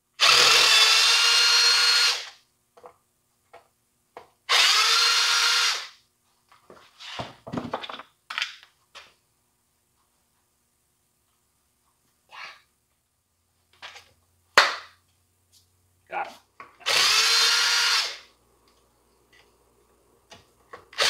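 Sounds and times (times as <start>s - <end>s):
cordless drill running: 0.2s - 2.4s, 4.5s - 6.0s, 16.8s - 18.3s
parts clattering on a bench: 7.2s - 9.1s.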